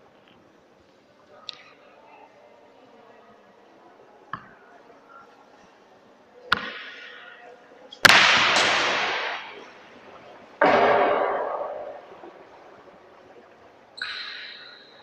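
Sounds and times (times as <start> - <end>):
sharp crack echoing in hall: 6.5 - 15.0
hockey stick hitting ball: 8.0 - 9.6, 10.6 - 12.4.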